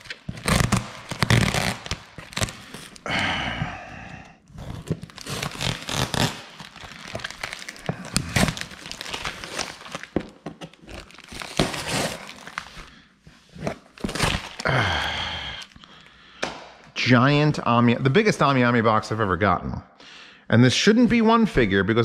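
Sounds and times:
plastic and tape crinkling: 0.0s - 3.1s, 4.6s - 12.9s, 13.7s - 14.8s.

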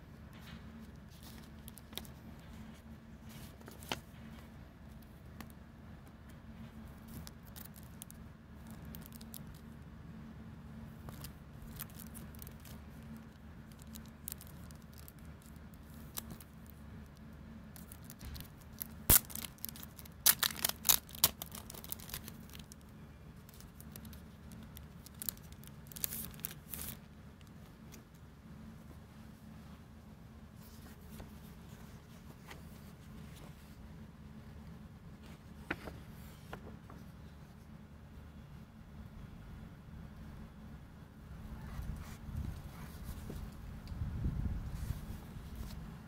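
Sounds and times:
steady low hum: 0.0s - 46.0s
packaging rustling and crinkling: 0.4s - 4.4s, 6.7s - 9.8s, 11.0s - 28.0s
crackles: 0.4s - 10.0s, 10.9s - 29.6s.

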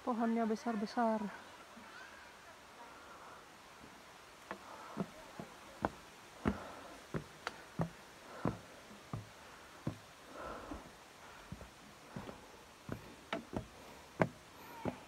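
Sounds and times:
footsteps on outdoor stairs: 3.8s - 15.0s.

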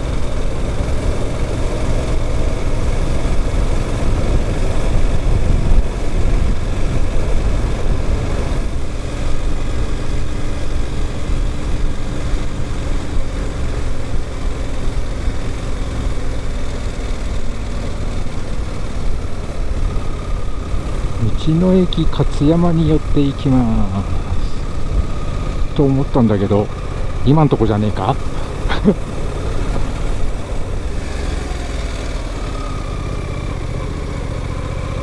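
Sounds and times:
motorcycle engine running: 0.0s - 35.0s
wind rumble on microphone: 3.3s - 9.6s.

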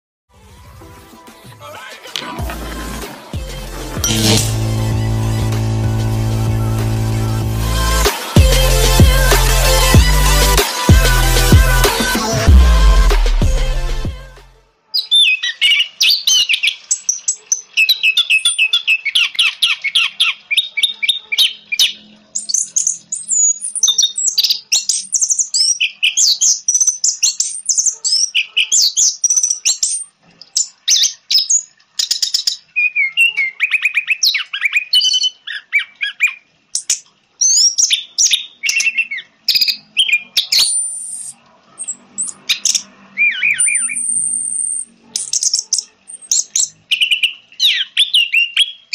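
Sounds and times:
thrush singing: 1.4s - 14.6s.

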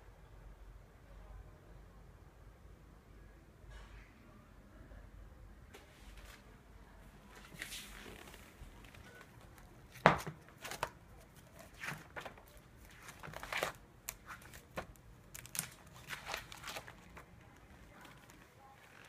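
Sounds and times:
pages in plastic sleeves crinkling: 7.5s - 19.0s.

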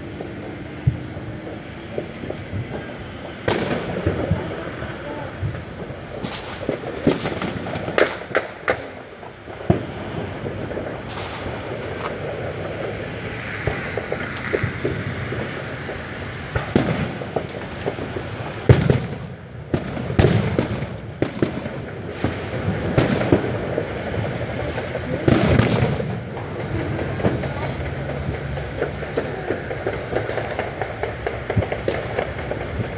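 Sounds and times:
firecrackers banging and popping: 0.0s - 32.9s
fireworks crackling: 0.0s - 32.9s.

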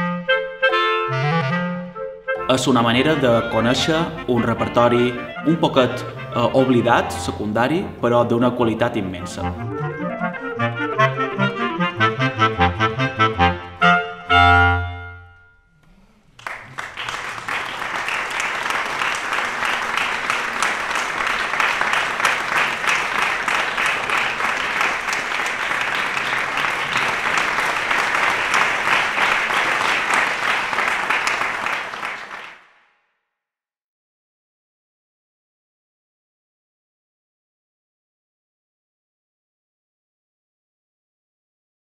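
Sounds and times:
basset horns holding a chord: 0.0s - 7.5s, 9.4s - 16.2s
audience applauding: 15.9s - 32.7s.

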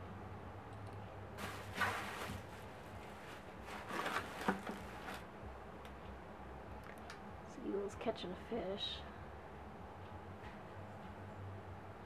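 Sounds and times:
packing paper and plastic crinkling: 1.4s - 5.3s.

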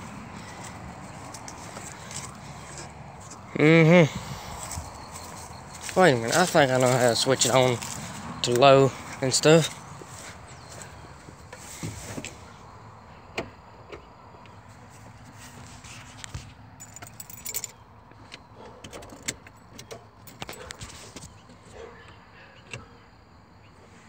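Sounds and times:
keys jangling: 16.8s - 17.8s.

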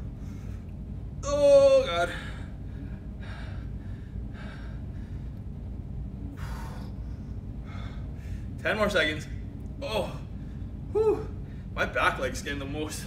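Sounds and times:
man breathing hard: 0.0s - 0.8s, 2.1s - 5.7s, 6.3s - 8.6s, 10.1s - 11.8s.

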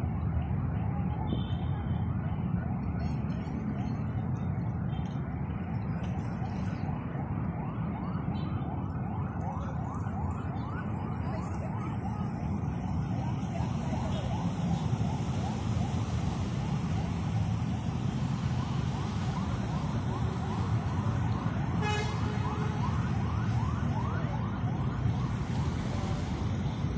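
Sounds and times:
road traffic rumble: 0.0s - 26.9s
siren yelping: 6.3s - 26.9s.

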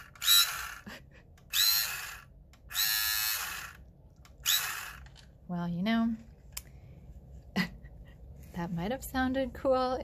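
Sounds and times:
toy pistol motor buzzing: 0.0s - 0.9s, 1.5s - 5.1s.

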